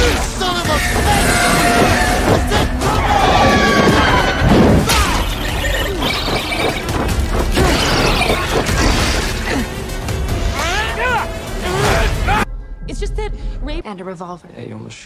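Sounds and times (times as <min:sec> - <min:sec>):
crashing and smashing effects: 0:00.0 - 0:09.5
dramatic film music: 0:00.0 - 0:14.0.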